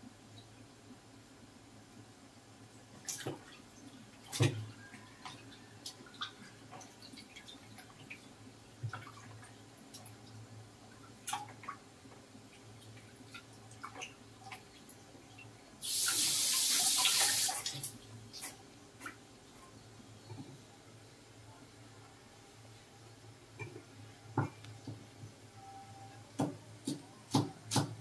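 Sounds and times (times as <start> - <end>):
water running into sink: 15.8 - 17.9.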